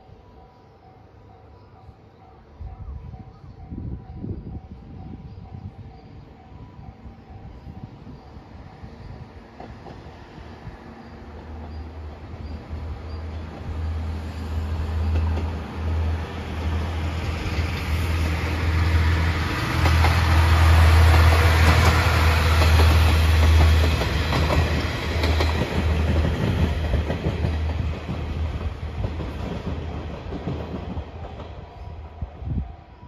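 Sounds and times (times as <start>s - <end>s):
diesel train engine drone: 0.0s - 33.0s
train wheels clattering on rails: 9.1s - 32.4s.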